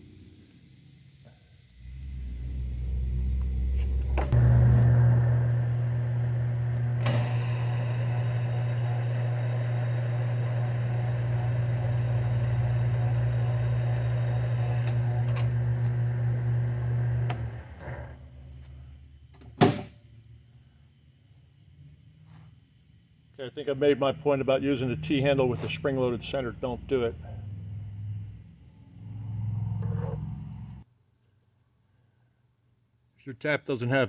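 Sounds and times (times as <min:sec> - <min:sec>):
lathe motor humming: 0:01.9 - 0:18.6.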